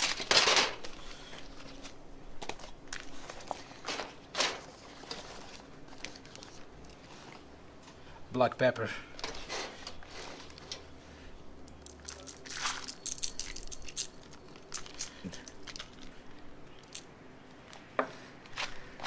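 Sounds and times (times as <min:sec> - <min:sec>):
leaves crinkling: 0:00.0 - 0:07.5, 0:11.6 - 0:17.8.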